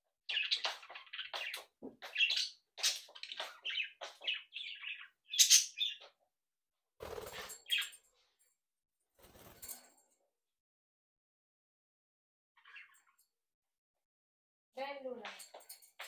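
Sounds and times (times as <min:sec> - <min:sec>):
budgerigars chirping: 0:00.3 - 0:06.1.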